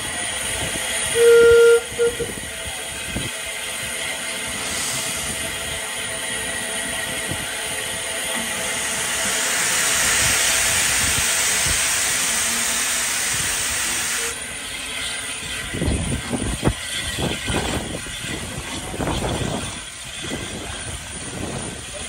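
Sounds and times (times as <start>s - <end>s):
steam locomotive hissing: 0.0s - 22.0s.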